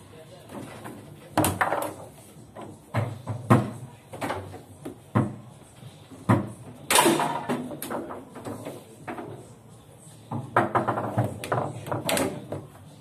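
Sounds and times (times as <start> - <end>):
foosball ball clacking: 0.8 - 5.4, 6.2 - 9.4, 10.3 - 12.7.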